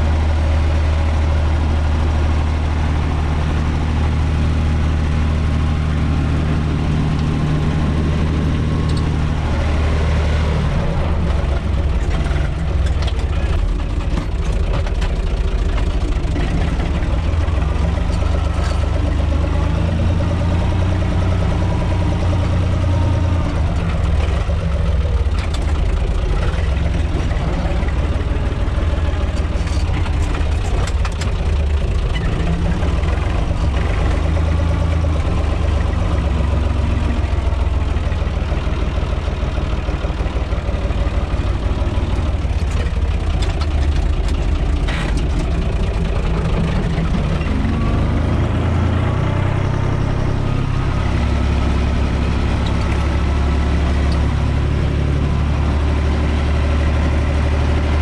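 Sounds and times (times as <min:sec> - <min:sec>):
tractor diesel engine running: 0:00.0 - 0:58.0
knocks and rattles: 0:11.2 - 0:19.9, 0:23.4 - 0:35.1, 0:41.8 - 0:48.4.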